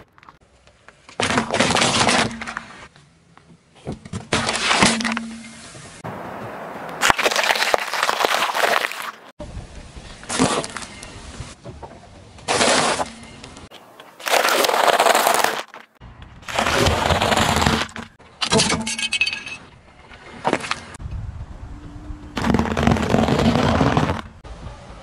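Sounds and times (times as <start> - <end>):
dry rusks crunching: 6.1 - 9.3, 12.5 - 18.2
car tyre crushing brittle things: 6.4 - 9.3, 12.4 - 18.6.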